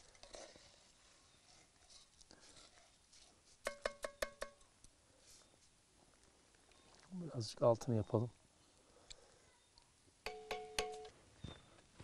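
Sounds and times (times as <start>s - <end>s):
metal spoon tapping pot rim: 3.7s - 4.6s, 10.3s - 11.1s.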